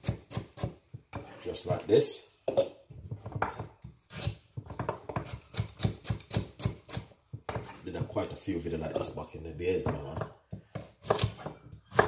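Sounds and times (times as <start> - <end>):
knife chopping carrot on board: 0.0 - 1.4, 3.2 - 8.1, 9.8 - 12.0.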